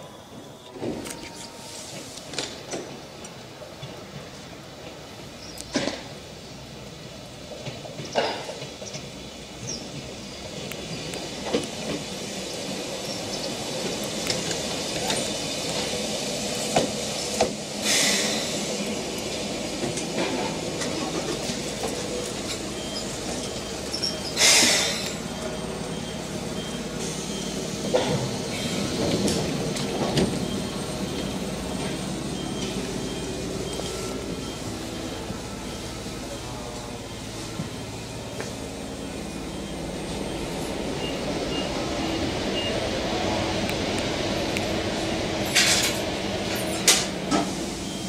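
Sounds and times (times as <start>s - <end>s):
electric train rolling on rails: 0.0s - 48.0s
compressed air hisses: 16.2s - 18.9s, 24.3s - 25.1s.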